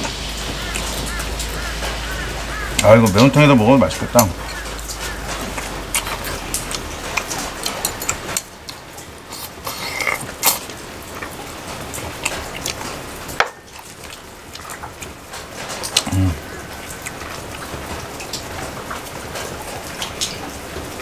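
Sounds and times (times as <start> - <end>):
wet crunchy chewing: 0.0 - 18.4.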